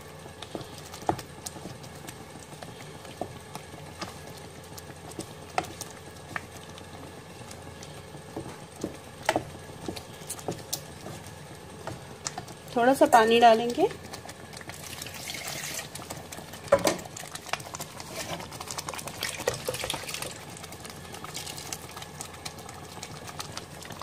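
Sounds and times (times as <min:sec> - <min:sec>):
wooden spatula scraping a pot: 0:15.1 - 0:16.0, 0:17.8 - 0:18.6.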